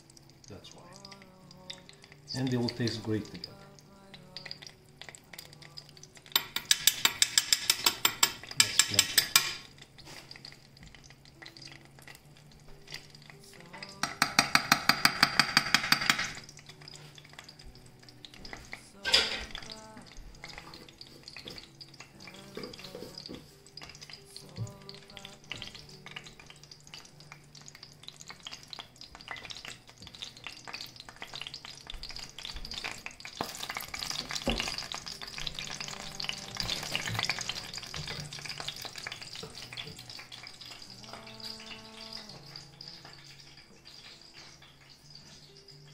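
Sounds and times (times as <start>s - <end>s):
butter sizzling in frying pan: 0.0s - 45.9s
metal spoon clinking against pan: 6.2s - 9.7s, 13.8s - 16.4s, 19.0s - 19.6s.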